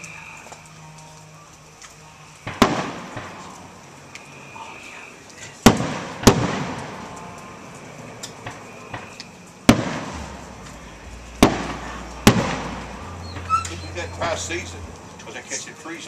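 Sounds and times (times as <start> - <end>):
light firework pops: 1.8 - 4.3, 5.3 - 10.8, 11.4 - 13.5
firework shells bursting: 1.8 - 13.4.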